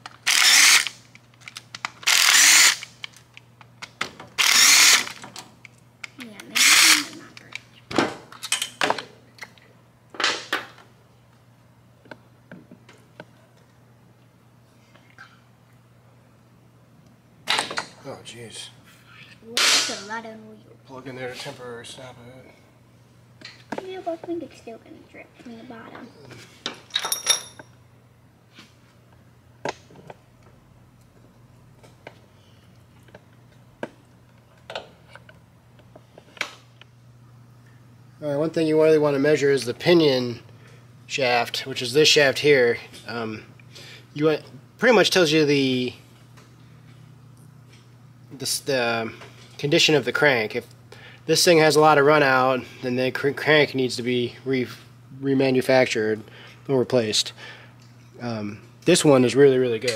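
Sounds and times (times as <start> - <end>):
steady low hum: 0.0 - 59.9
metal tools clinking: 26.9 - 27.8.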